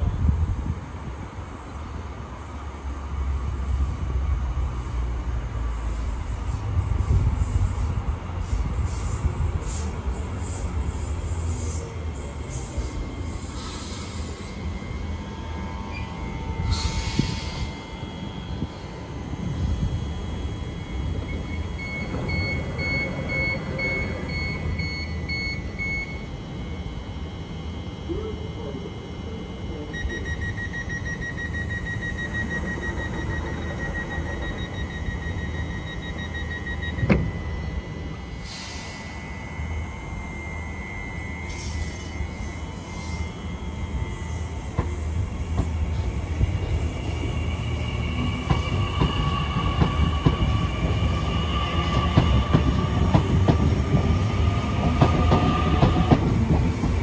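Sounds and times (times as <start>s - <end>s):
electric train rumbling: 0.0s - 57.0s
thin whining tones: 32.7s - 57.0s.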